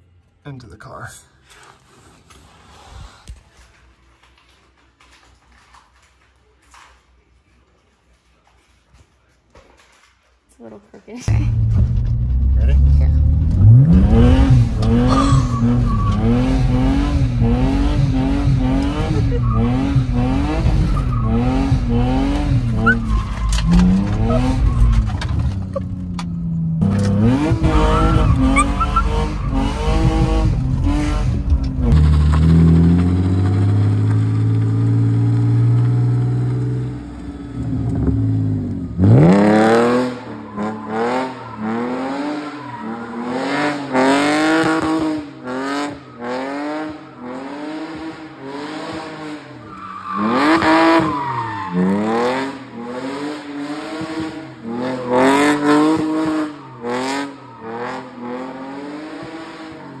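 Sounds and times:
car engine revving: 11.3 - 60.0
tyres squealing: 18.9 - 26.0, 27.6 - 30.5.

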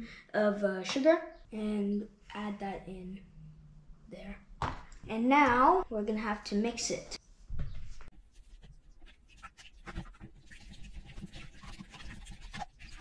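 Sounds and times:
whisk tapping and scraping bowl: 8.2 - 13.0.

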